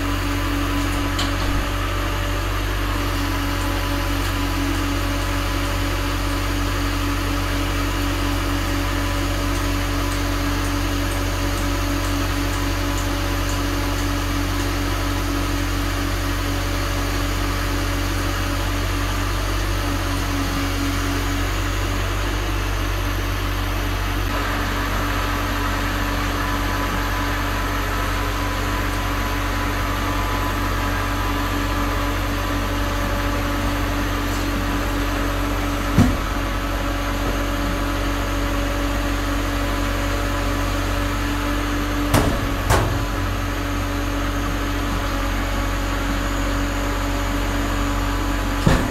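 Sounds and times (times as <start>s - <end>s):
machinery droning: 20.3s - 48.9s.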